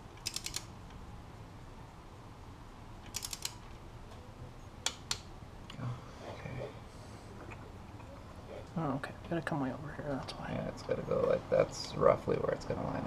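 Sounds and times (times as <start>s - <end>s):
ratchet wrench clicking: 0.2s - 0.7s, 3.0s - 3.6s.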